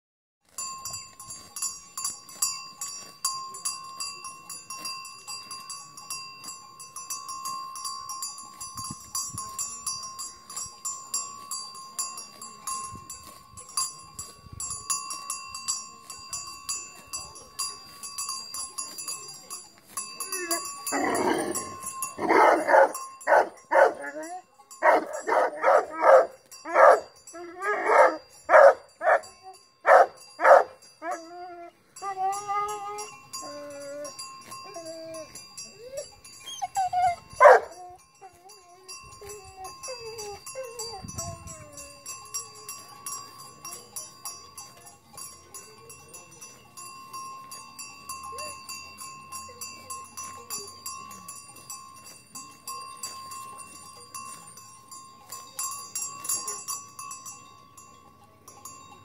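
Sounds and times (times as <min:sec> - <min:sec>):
cow bell clinking: 0:00.4 - 0:59.0
dog barking: 0:22.2 - 0:24.1, 0:24.8 - 0:27.1, 0:27.7 - 0:29.3, 0:29.9 - 0:30.7, 0:37.4 - 0:37.7.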